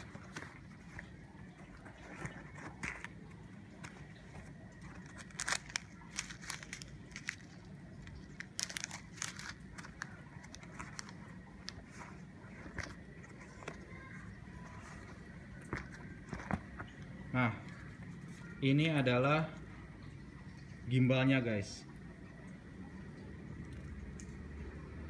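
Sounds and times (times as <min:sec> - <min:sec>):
handling clicks and rustles: 0:00.0 - 0:18.6
faint background noise: 0:00.0 - 0:25.0.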